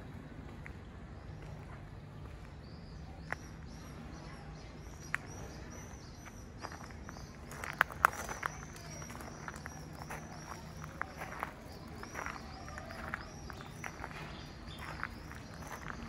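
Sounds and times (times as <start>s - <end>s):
small birds chirping: 0.1s - 16.0s
footsteps on gravel: 4.8s - 16.0s.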